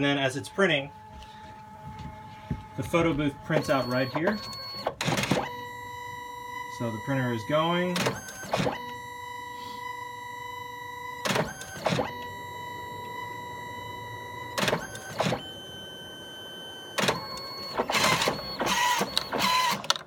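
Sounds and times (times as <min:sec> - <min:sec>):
printer motor whine: 0:00.0 - 0:20.0
brief mechanical noises: 0:17.0 - 0:20.0.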